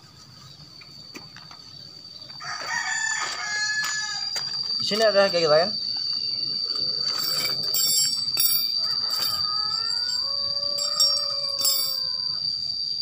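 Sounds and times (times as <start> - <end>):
high-pitched insect drone: 0.0 - 13.0
rooster crowing: 2.3 - 4.4, 6.6 - 13.0.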